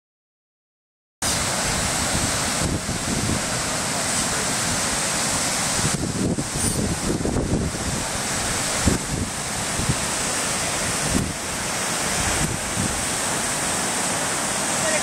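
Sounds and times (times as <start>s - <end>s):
surf breaking on shore: 1.2s - 15.0s
wind buffeting microphone: 1.4s - 3.8s, 4.4s - 13.8s.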